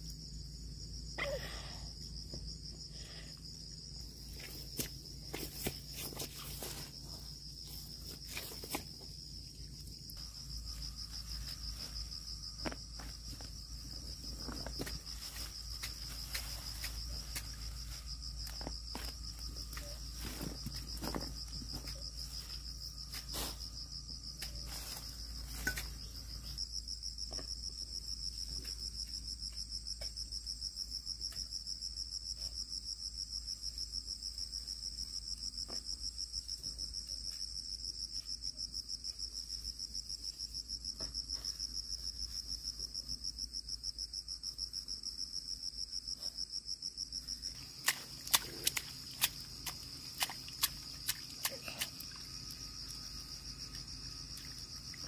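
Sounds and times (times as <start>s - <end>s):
high-pitched insect trill: 0.0s - 55.0s
plants rustling and snapping: 47.6s - 52.1s.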